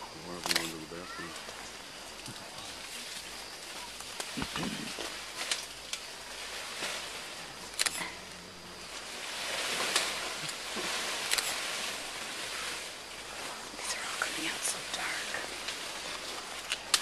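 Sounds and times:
leaves and stems rustling: 0.0s - 17.0s.

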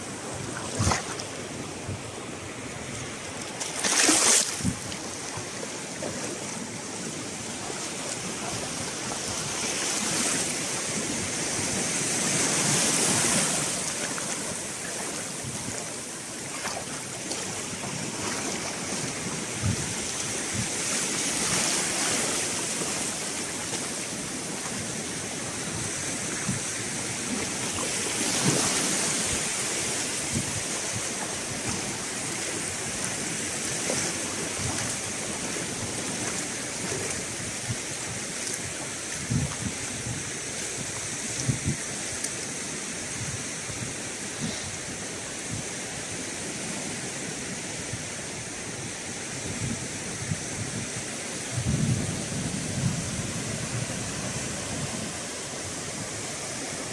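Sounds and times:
surf washing over sandy beach: 0.0s - 56.9s
wind buffeting microphone: 4.5s - 5.6s, 8.2s - 42.1s, 49.4s - 56.2s.

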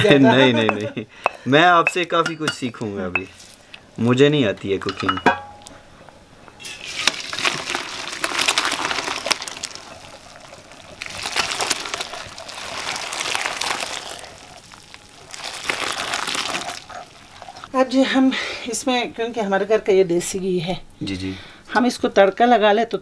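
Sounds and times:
pot clinking against colander: 0.6s - 3.3s, 4.8s - 5.7s
water gushing through colander: 6.6s - 17.8s.

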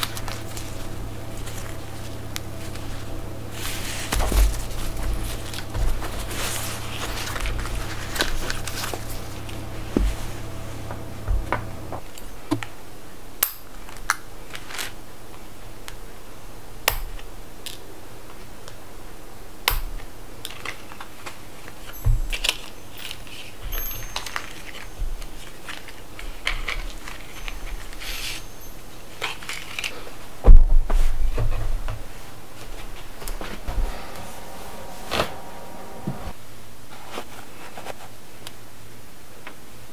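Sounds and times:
fabric rustling: 0.0s - 12.5s
packaging clicks and crinkles: 29.2s - 30.0s.

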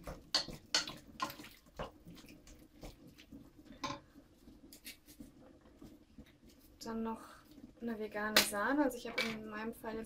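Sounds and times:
spoon knocking and scraping a pan: 0.0s - 5.4s
spoon stirring wet food in a pan: 0.0s - 9.5s.

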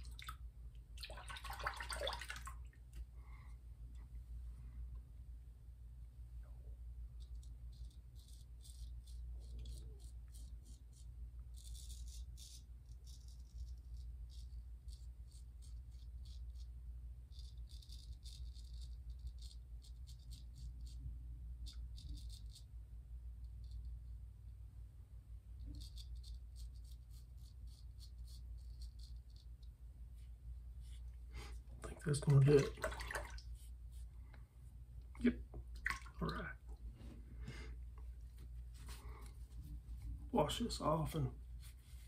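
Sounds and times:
low steady hum: 0.0s - 42.0s
razor scraping stubble: 25.6s - 29.5s.

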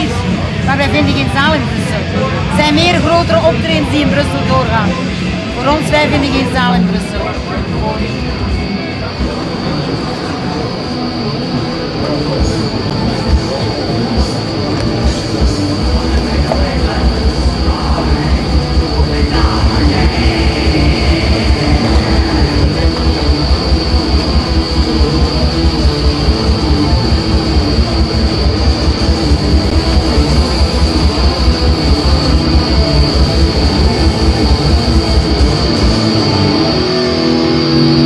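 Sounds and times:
distorted electric guitar: 0.0s - 38.0s
fast drumming: 15.0s - 36.3s.

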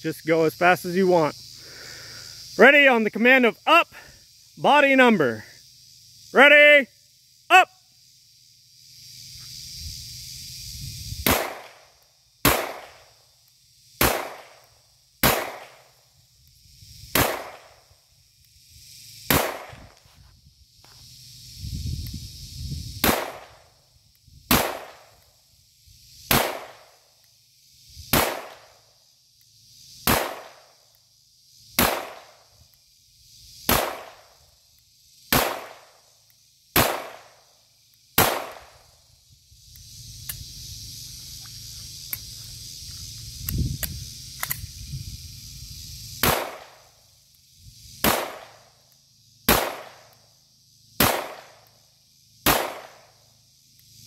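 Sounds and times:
pistol shots with echo: 38.2s - 38.6s, 52.5s - 53.0s
small clicks: 43.4s - 44.7s.

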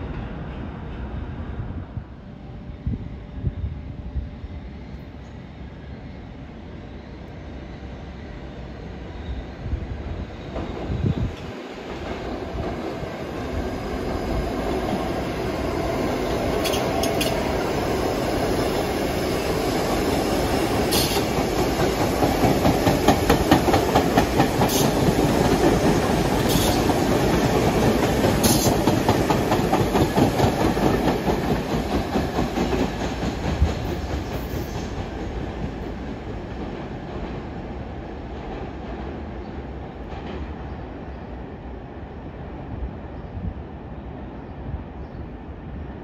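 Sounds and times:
subway train passing on tracks: 0.0s - 46.0s
wheels clicking over rail joints: 16.6s - 17.4s.

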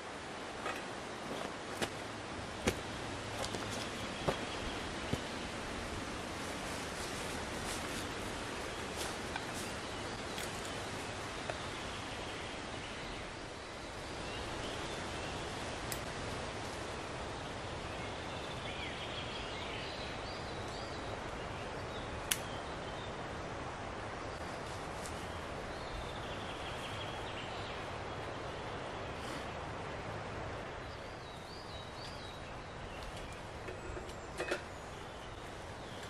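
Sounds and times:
steady background hiss: 0.0s - 36.0s
small sharp clicks: 22.3s - 22.5s.

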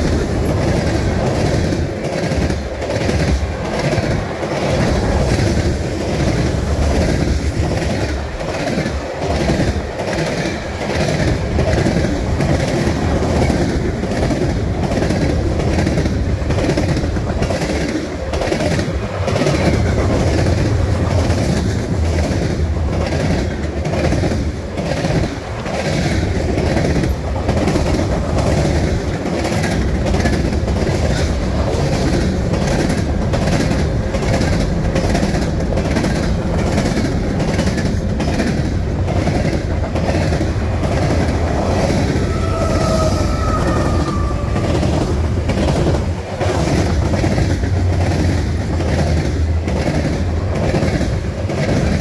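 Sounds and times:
steel wheels rumbling on rail: 0.0s - 52.0s
wheels clacking over rail joints: 0.0s - 52.0s.

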